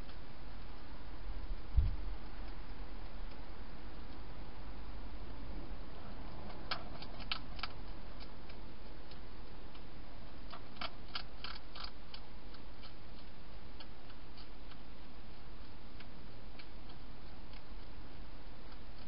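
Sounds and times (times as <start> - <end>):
hedgehog crunching dry food: 6.2 - 19.0.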